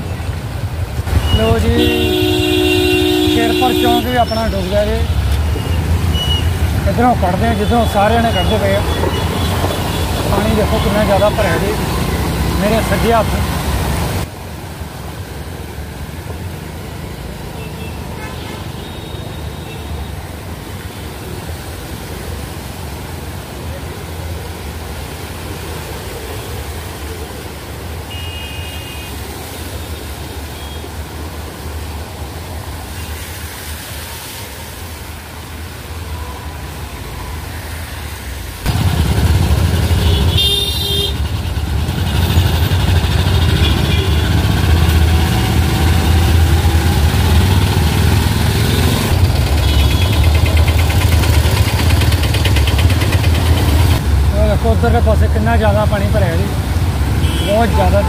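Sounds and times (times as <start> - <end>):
road traffic: 0.0 - 58.0
car horn toots: 1.1 - 4.9, 28.1 - 29.1, 39.9 - 41.3, 48.6 - 50.4, 57.2 - 58.0.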